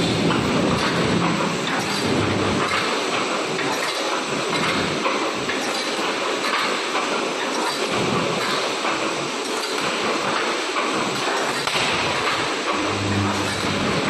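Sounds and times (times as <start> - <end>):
welding machine clattering: 9.5 - 14.0.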